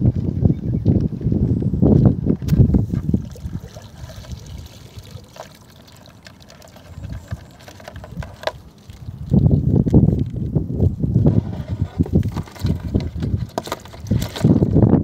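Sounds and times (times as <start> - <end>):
water pouring and trickling: 2.7 - 10.9.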